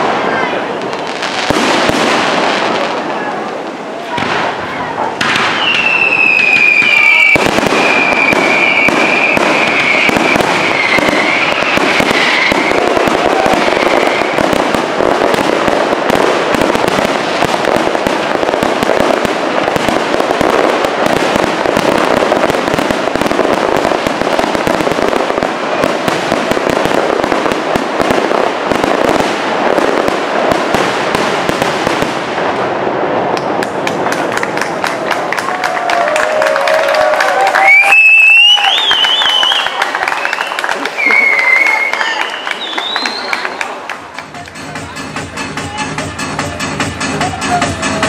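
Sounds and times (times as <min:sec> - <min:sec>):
fireworks bangs and crackling: 0:00.0 - 0:48.0
wavering firework whistle: 0:05.3 - 0:14.7, 0:37.4 - 0:43.7.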